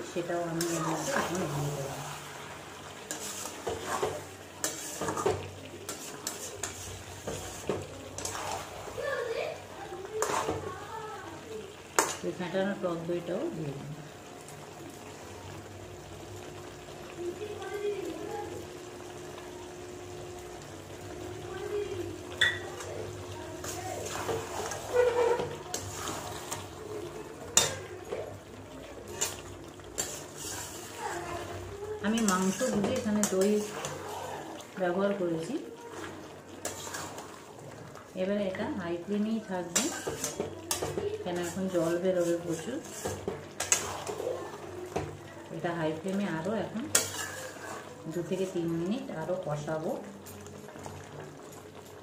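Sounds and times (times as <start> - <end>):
meat sizzling in pan: 0.0 - 52.0
spatula scraping metal pan: 0.4 - 2.3, 3.0 - 9.1, 10.2 - 10.7, 23.6 - 26.7, 29.1 - 34.4, 36.0 - 37.4, 39.6 - 44.4, 46.9 - 48.0
wet yogurt mixing: 0.4 - 11.6, 22.2 - 48.6.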